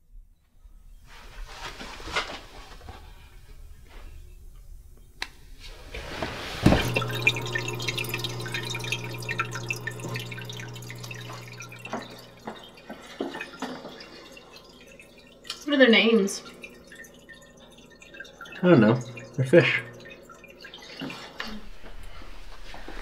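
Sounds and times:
aquarium filter hum: 0.9 - 23.0
water dripping and trickling: 6.7 - 23.0.

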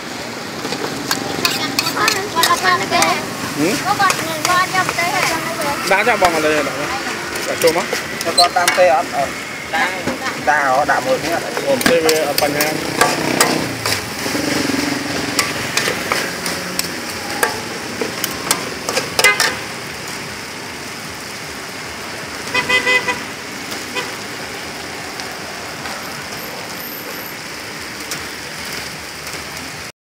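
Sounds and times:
street hum: 0.0 - 29.9
metal spatulas scraping a steel pan: 1.1 - 6.6, 11.3 - 19.6
vehicle horn toots: 19.2 - 19.7, 22.5 - 23.3, 23.9 - 24.2.

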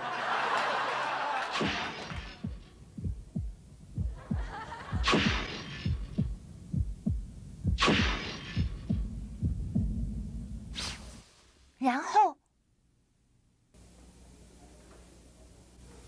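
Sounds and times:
heartbeat thuds: 2.4 - 10.8.

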